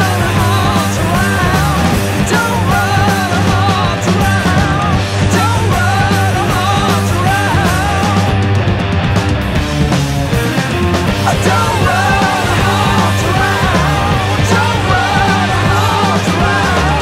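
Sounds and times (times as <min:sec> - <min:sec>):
rock band music: 0:00.0 - 0:17.0.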